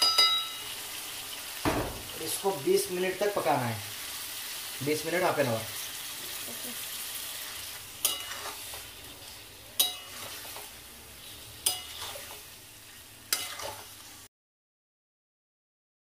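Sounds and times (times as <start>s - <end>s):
spatula clanking against pan: 0.0s - 0.6s, 8.0s - 8.8s, 9.8s - 10.7s, 11.6s - 12.4s, 13.3s - 13.9s
chicken sizzling in oil: 0.0s - 14.3s.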